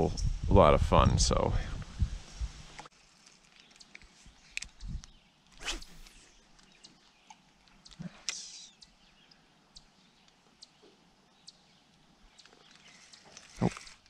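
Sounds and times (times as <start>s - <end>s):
brief hiss: 5.6s - 6.3s.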